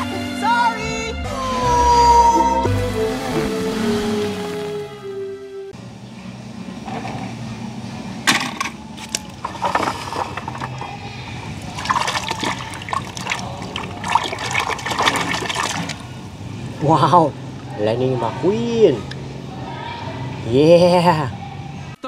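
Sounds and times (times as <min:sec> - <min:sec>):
water sloshing in a basin: 0:09.0 - 0:16.7.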